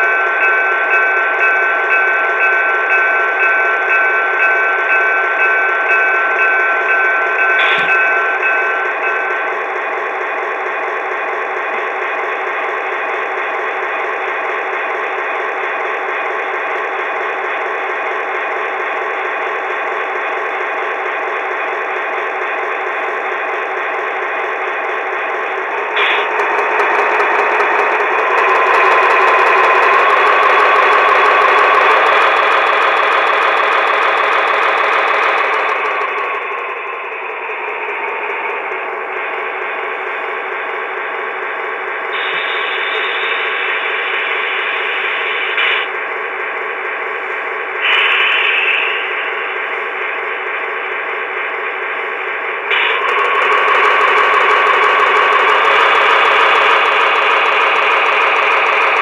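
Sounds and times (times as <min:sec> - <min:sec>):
diesel engine sound from small speaker: 0:25.6 - 0:39.2.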